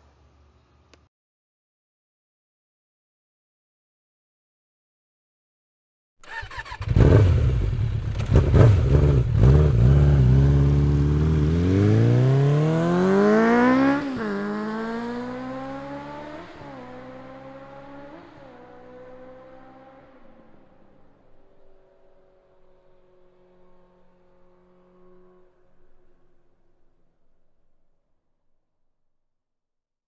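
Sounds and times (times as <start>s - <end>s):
motorcycle engine revving: 6.2s - 20.8s.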